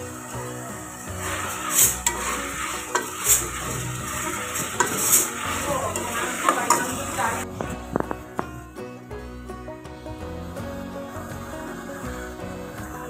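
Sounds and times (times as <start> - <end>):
potatoes sizzling in oil: 0.0 - 8.5
spoon scraping metal pot: 1.1 - 8.4.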